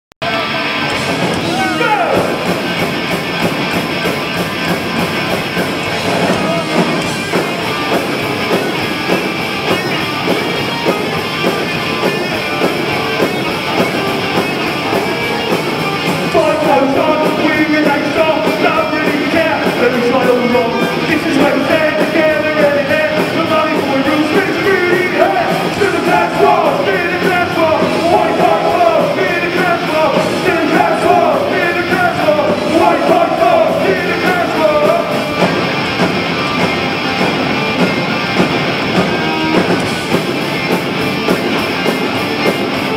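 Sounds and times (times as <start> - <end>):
punk rock band playing: 0.2 - 42.9
shouted lead vocal: 1.4 - 2.5, 6.2 - 7.1, 16.3 - 35.5.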